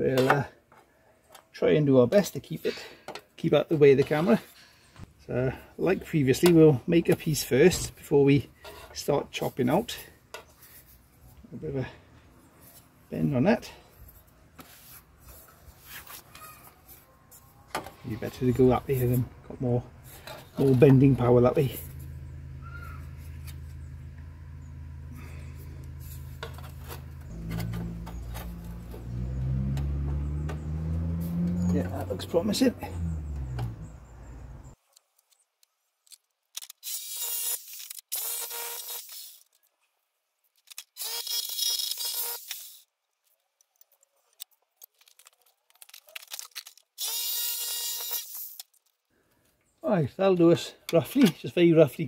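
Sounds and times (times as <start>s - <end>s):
angle grinder cutting sheet steel: 36.8s - 39.4s, 47.0s - 48.6s.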